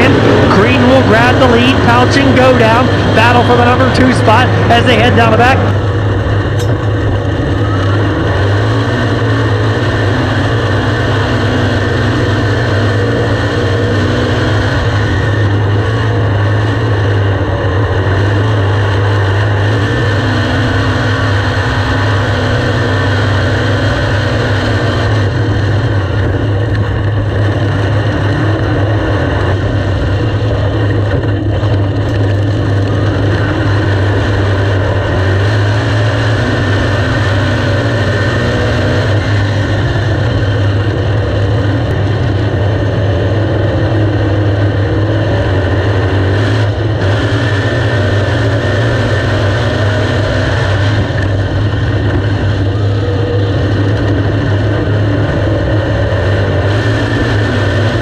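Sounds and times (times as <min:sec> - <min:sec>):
racing car engine drone: 0:00.0 - 0:58.0.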